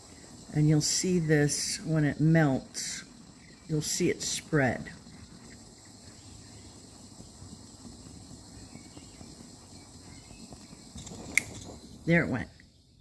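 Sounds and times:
handheld torch hissing: 10.8 - 12.1.

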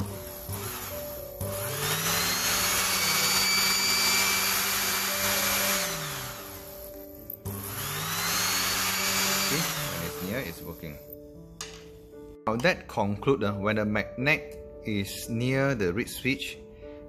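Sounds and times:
electric water pump motor whining: 0.0 - 10.8.

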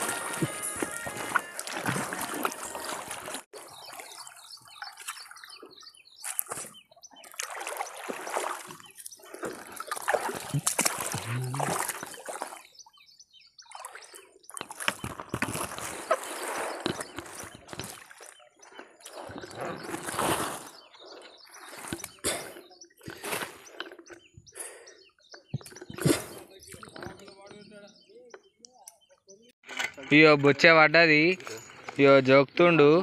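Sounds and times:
paddle splashing in lake water: 0.0 - 13.0, 13.6 - 24.2, 29.6 - 30.3
wading in shallow water: 0.0 - 27.4.

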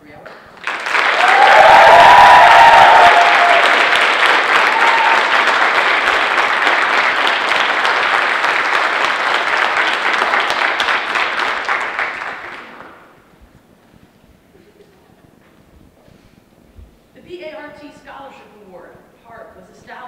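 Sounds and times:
audience applauding: 0.6 - 13.2.

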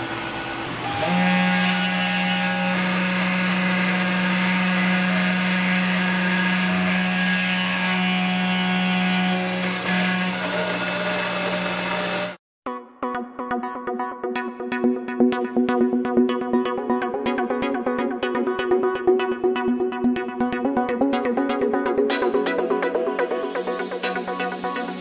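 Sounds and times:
cnc spindle carving wood: 0.0 - 12.4.

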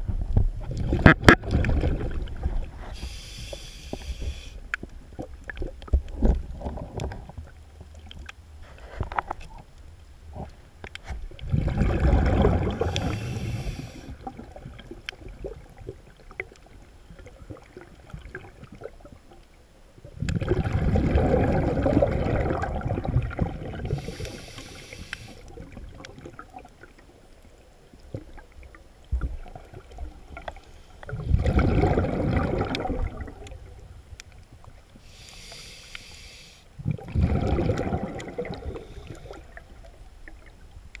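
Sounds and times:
exhaled bubbles underwater: 0.6 - 4.4, 5.0 - 8.0, 11.3 - 19.3, 20.0 - 27.0, 28.0 - 33.9, 36.8 - 40.7
regulator hiss: 3.0 - 4.6, 12.9 - 14.1, 23.9 - 25.4, 35.1 - 36.7.

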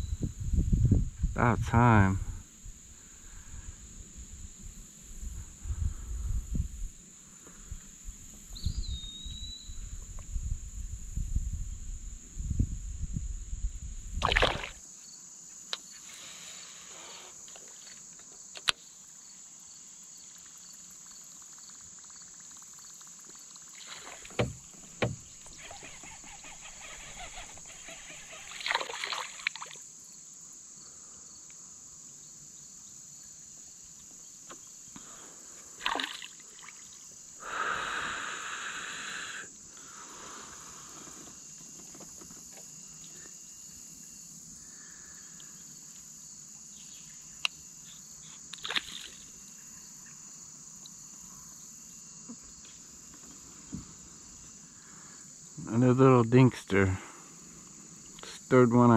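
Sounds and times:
insect drone: 0.0 - 58.9
paddle splashes: 14.2 - 14.8, 23.7 - 26.4, 28.4 - 29.8, 35.8 - 36.9
knocks against kayak hull: 24.2 - 25.3.

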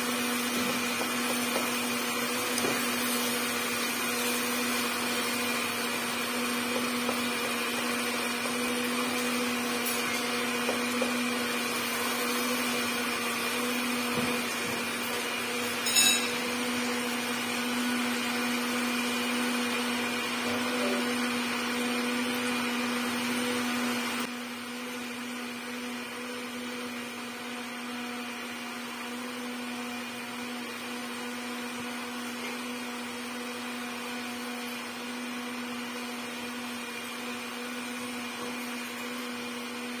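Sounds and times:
sharp clink: 15.8 - 16.4.

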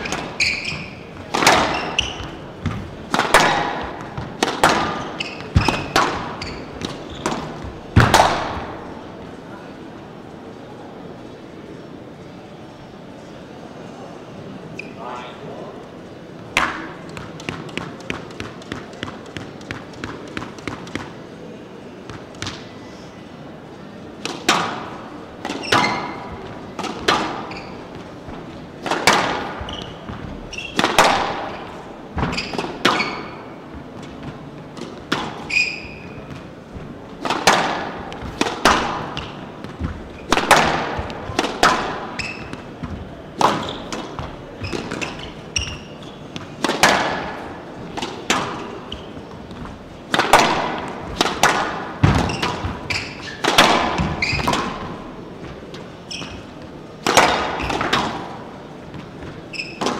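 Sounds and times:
shoe squeaks on court floor: 0.0 - 2.7, 4.8 - 7.8, 14.7 - 15.1, 25.5 - 26.4, 27.2 - 28.2, 29.4 - 33.6, 35.2 - 36.4, 41.9 - 42.8, 43.5 - 46.6, 48.7 - 49.4, 52.2 - 54.8, 56.0 - 56.6, 59.3 - 59.9
squash ball cracks off racket and walls: 0.0 - 9.0, 16.5 - 21.2, 24.2 - 59.9.

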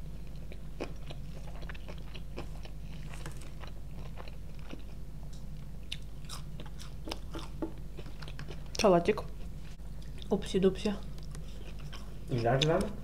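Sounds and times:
steady low hum: 0.0 - 13.0
chewing and crunching food: 0.1 - 13.0.

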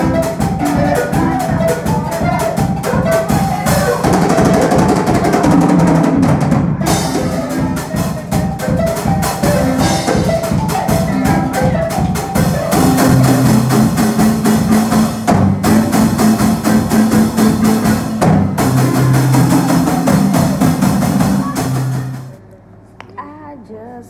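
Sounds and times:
drum kit beat: 0.0 - 22.4
marimbas struck with mallets: 6.8 - 22.3.

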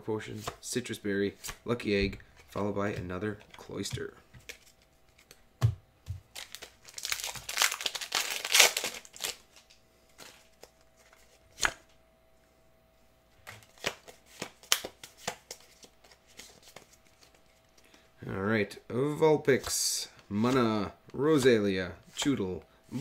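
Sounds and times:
foil wrapper crinkling: 6.3 - 9.7.

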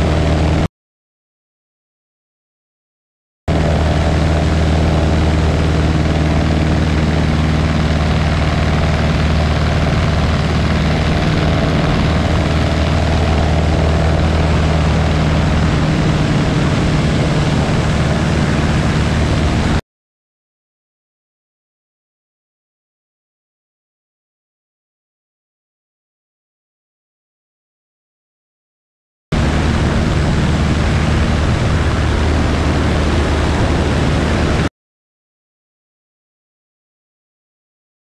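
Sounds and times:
light aircraft engine and propeller: 0.0 - 0.7, 3.5 - 19.8, 29.4 - 34.7.

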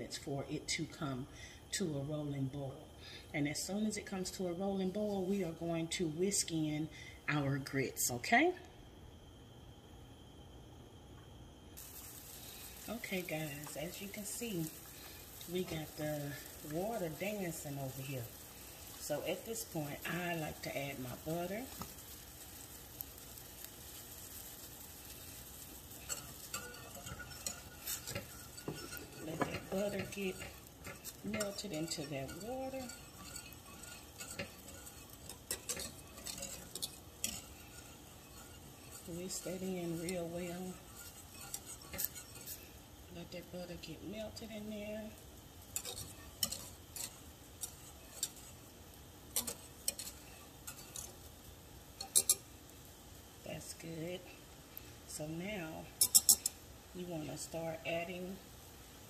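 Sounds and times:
eggs sizzling in skillet: 0.0 - 8.3, 8.9 - 59.0
water boiling: 11.4 - 59.0
whisk clinking against saucepan: 24.0 - 42.8, 45.8 - 48.7, 49.4 - 51.2, 52.0 - 52.4, 56.0 - 56.6.

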